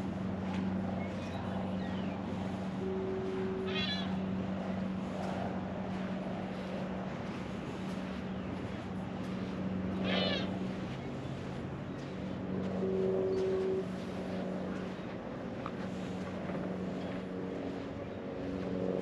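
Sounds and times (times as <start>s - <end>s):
steady low hum: 0.0s - 19.0s
gull mewing call: 3.5s - 4.2s, 10.0s - 10.5s.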